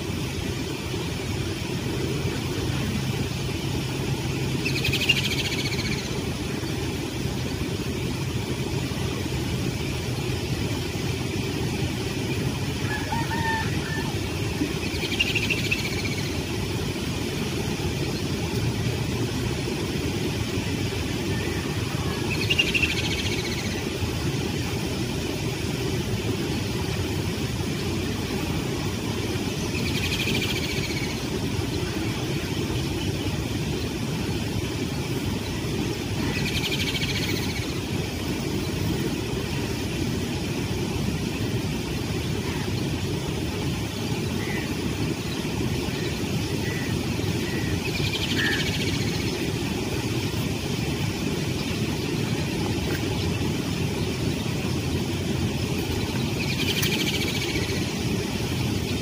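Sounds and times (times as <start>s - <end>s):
distant road traffic rumble: 0.0s - 59.0s
bird chirping: 4.6s - 6.1s, 55.9s - 57.8s.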